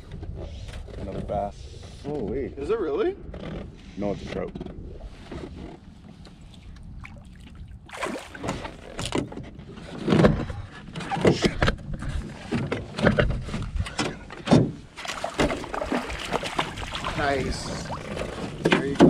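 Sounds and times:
knocks and bumps in a boat: 0:03.3 - 0:19.0
water splashing: 0:06.2 - 0:09.3, 0:14.9 - 0:19.0.

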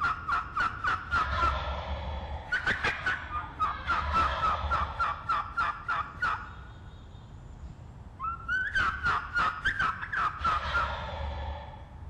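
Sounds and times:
wild turkeys calling: 0:00.0 - 0:01.8, 0:02.5 - 0:06.7, 0:08.2 - 0:11.6.

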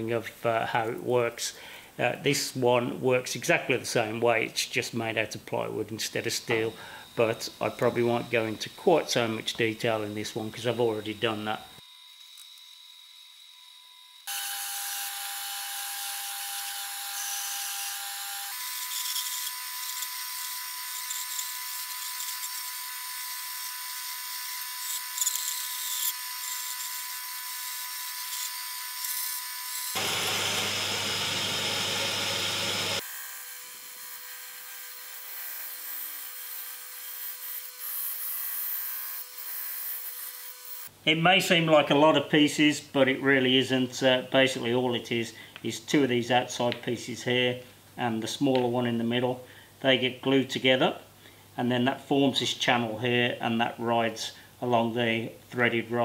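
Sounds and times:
disc sander sanding wood: 0:06.1 - 0:13.6, 0:14.2 - 0:33.1
bandsaw cutting wood: 0:06.4 - 0:40.9
drill press boring wood: 0:10.3 - 0:38.8.

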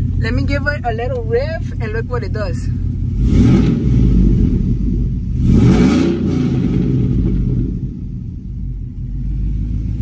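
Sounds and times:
truck engine revving: 0:02.9 - 0:08.4.

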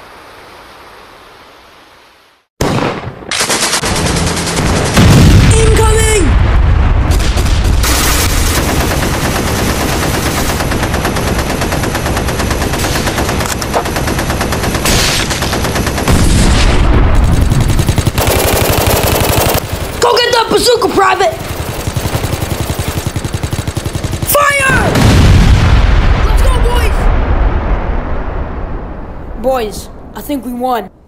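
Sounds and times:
single gunshots: 0:02.6 - 0:09.0
rapid automatic gunfire: 0:02.7 - 0:05.7, 0:07.1 - 0:25.2.

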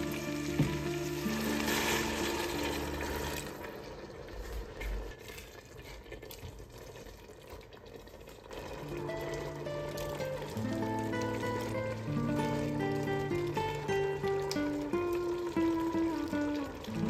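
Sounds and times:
background music: 0:00.0 - 0:03.8, 0:08.8 - 0:17.0
water pouring into a pot: 0:00.0 - 0:17.0.

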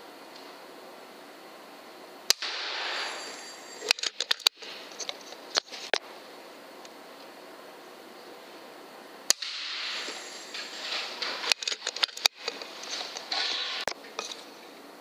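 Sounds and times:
air rifle shot: 0:02.3 - 0:03.3, 0:09.3 - 0:10.2
hissing noise: 0:02.3 - 0:06.0, 0:09.3 - 0:13.9
sharp clicks and knocks: 0:03.8 - 0:06.0, 0:09.3 - 0:14.4.

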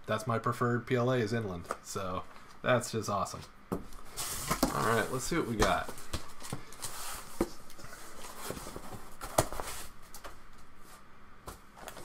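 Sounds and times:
cardboard box rustling and scraping: 0:04.1 - 0:10.0.

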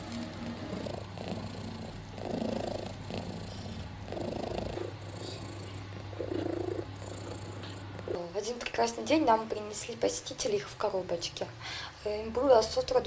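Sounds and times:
cat purring: 0:00.0 - 0:10.4.

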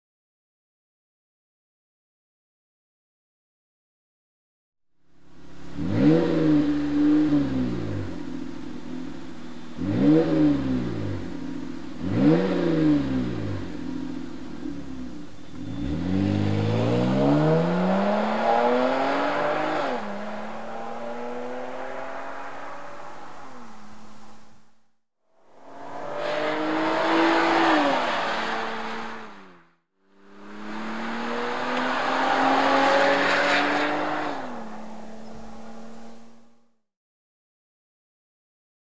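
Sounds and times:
car engine revving and accelerating: 0:05.2 - 0:24.7, 0:25.4 - 0:36.6.

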